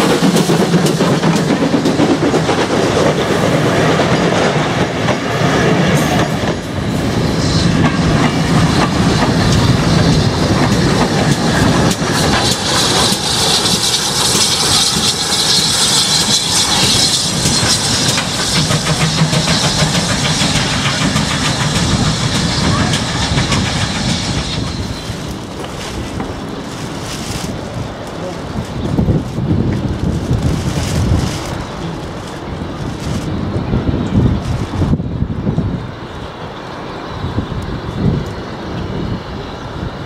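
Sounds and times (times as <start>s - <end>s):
steam hiss: 0.0s - 28.6s
steam train rolling past: 0.0s - 40.0s.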